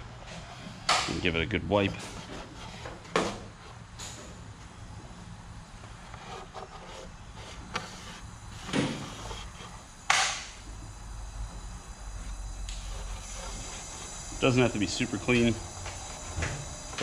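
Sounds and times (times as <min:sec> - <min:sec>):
steady low hum: 0:00.0 - 0:17.0
rag rubbing plastic: 0:00.5 - 0:03.7, 0:05.9 - 0:09.9, 0:12.8 - 0:17.0.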